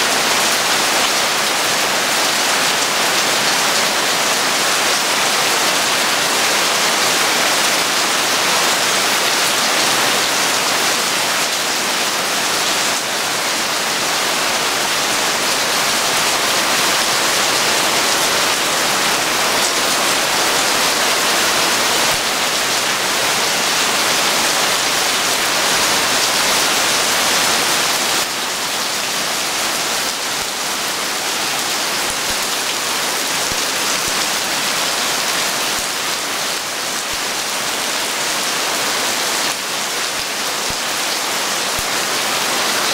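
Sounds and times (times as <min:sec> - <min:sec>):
heavy rain on water and deck: 0:00.0 - 0:42.9.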